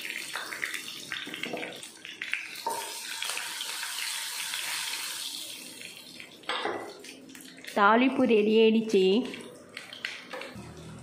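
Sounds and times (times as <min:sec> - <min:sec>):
hot oil sizzling and crackling: 0:00.0 - 0:07.8.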